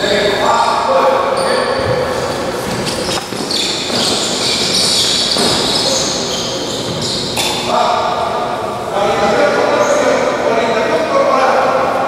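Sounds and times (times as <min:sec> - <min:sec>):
shoes squeaking on court: 0:01.2 - 0:07.8.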